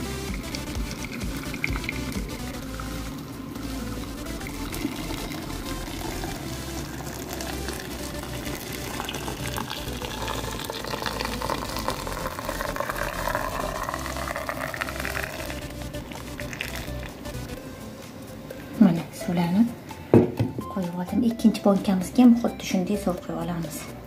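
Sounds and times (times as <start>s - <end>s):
water pouring into glass jar: 0.0s - 3.2s, 3.9s - 17.2s.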